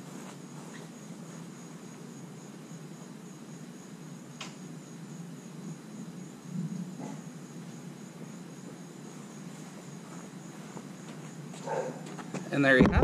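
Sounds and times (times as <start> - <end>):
insect chirring: 0.0 - 13.0
low background noise: 0.0 - 13.0
small click: 4.4 - 4.6.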